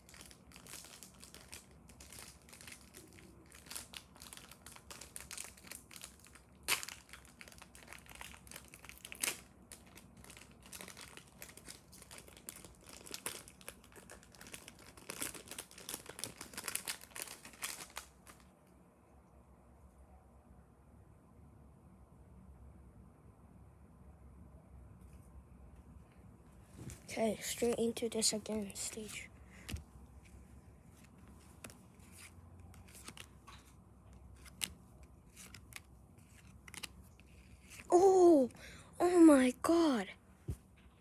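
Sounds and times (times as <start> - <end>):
foil wrapper crinkling: 0.0 - 18.5
cards being handled: 27.5 - 29.8, 31.0 - 37.9.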